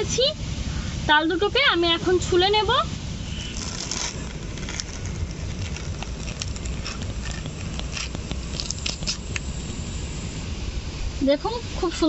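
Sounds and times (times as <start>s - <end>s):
low background rumble: 0.0s - 12.0s
fruit skin tearing crackles: 3.4s - 9.7s.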